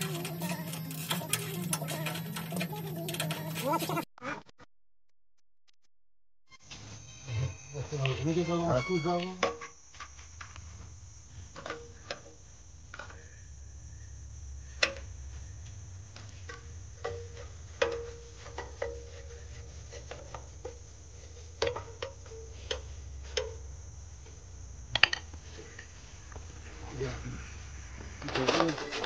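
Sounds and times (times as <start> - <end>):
hand tools clinking on metal: 0.0 - 4.0
low steady hum: 6.7 - 29.0.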